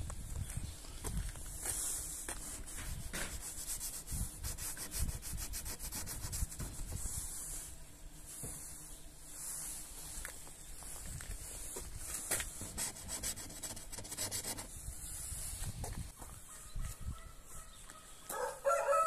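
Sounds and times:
fingertip scratching frost on glass: 0:12.2 - 0:14.7.

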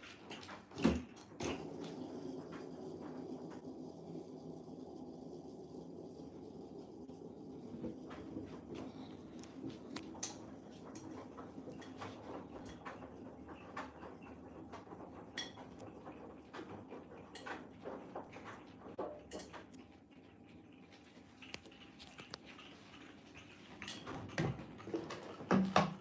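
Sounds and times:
steady low hum: 0:01.7 - 0:16.5.

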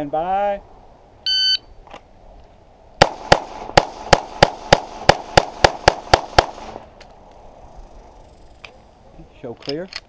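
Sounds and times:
pistol shots: 0:03.0 - 0:06.8.

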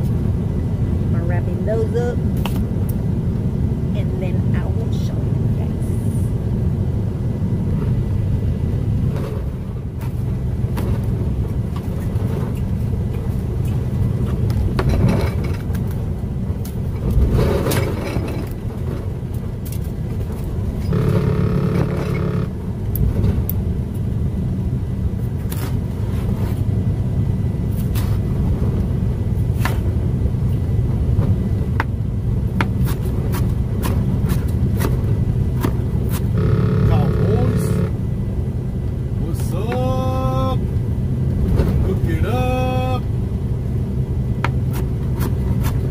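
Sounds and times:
diesel truck engine idling: 0:20.5 - 0:25.2, 0:33.6 - 0:45.2.

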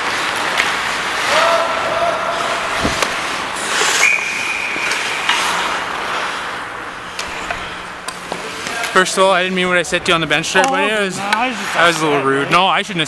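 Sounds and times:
skates scraping ice: 0:00.0 - 0:09.0, 0:11.2 - 0:12.3
wind on microphone: 0:02.7 - 0:03.2
short high whistle: 0:03.9 - 0:05.0
steady squeal: 0:07.0 - 0:08.0.

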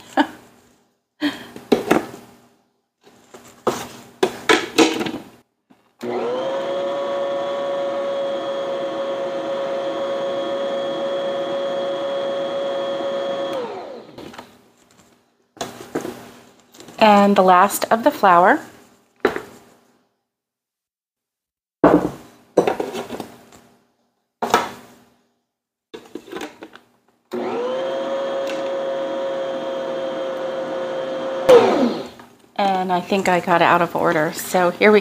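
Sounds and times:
electric stand mixer running: 0:06.0 - 0:14.2, 0:27.3 - 0:32.2.

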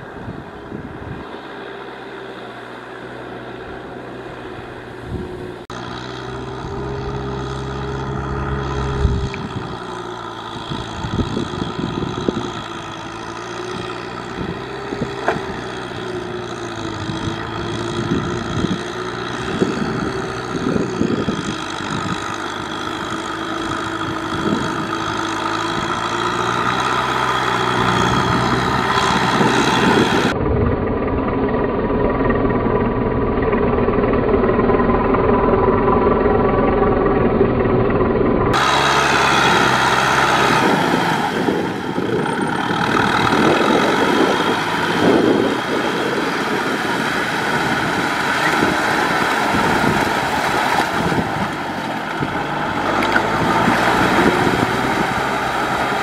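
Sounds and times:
tractor diesel engine running: 0:00.0 - 0:56.0
wheels and implement clattering: 0:38.6 - 0:56.0.

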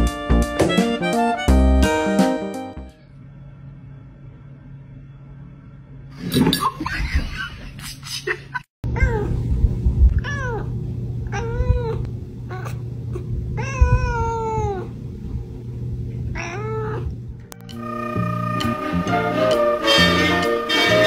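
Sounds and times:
cat meowing: 0:10.2 - 0:10.7, 0:13.6 - 0:14.9, 0:16.4 - 0:17.1.

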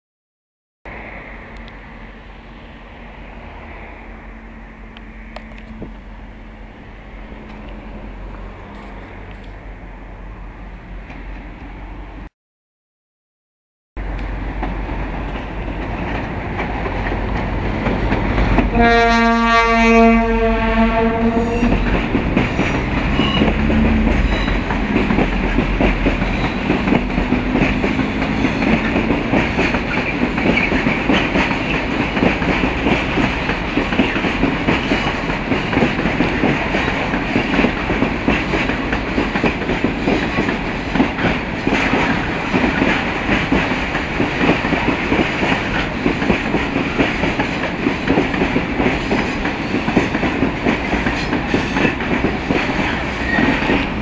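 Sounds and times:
diesel locomotive engine drone: 0:00.9 - 0:12.3, 0:14.0 - 0:54.0
train wheels clattering over rail joints: 0:21.6 - 0:54.0.

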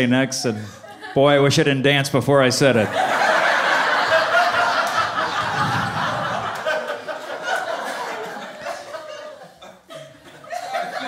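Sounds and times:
audience laughing: 0:02.8 - 0:11.0.

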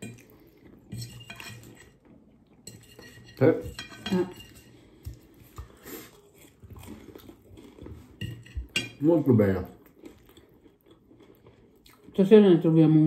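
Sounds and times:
forks clinking on plates: 0:00.9 - 0:02.0, 0:02.6 - 0:05.2, 0:08.2 - 0:09.1.

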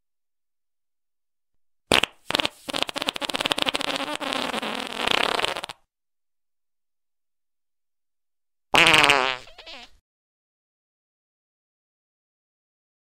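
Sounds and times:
fart sounds: 0:01.9 - 0:05.9, 0:08.7 - 0:10.0.

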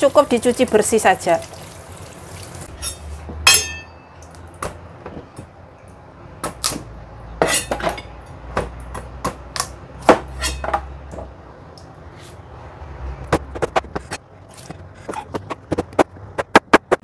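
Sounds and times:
knife metallic clink: 0:02.8 - 0:04.1, 0:07.4 - 0:08.1.

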